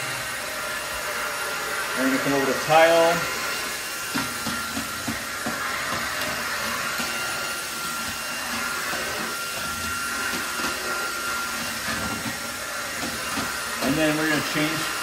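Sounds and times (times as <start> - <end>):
stick vacuum running: 0.0 - 15.0.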